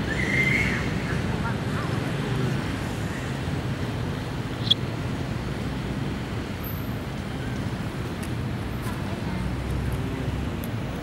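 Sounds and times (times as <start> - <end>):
high-pitched chirp: 4.6 - 4.8.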